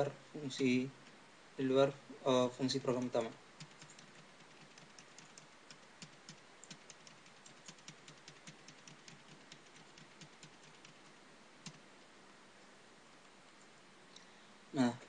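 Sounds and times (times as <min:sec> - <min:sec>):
computer keyboard typing: 0:02.7 - 0:11.8.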